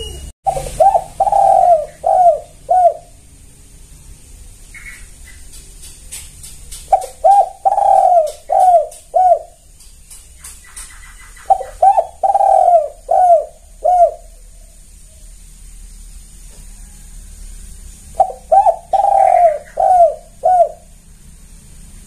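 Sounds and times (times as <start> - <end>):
dove cooing: 0.0 - 3.3, 6.8 - 9.6, 10.4 - 15.3, 18.1 - 21.0.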